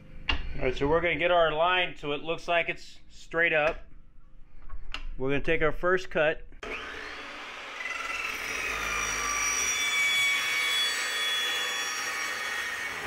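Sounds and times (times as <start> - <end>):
cold saw cutting metal tube: 6.6 - 13.0.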